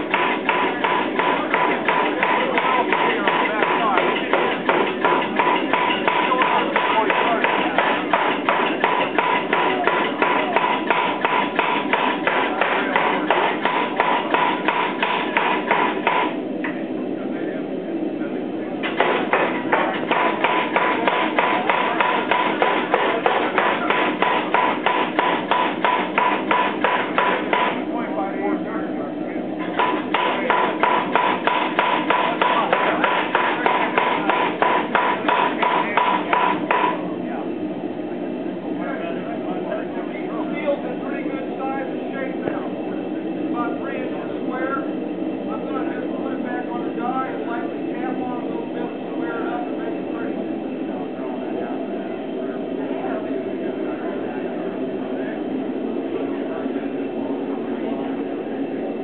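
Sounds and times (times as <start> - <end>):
air hammer striking steel: 0.0 - 16.4, 18.8 - 27.9, 29.6 - 37.0.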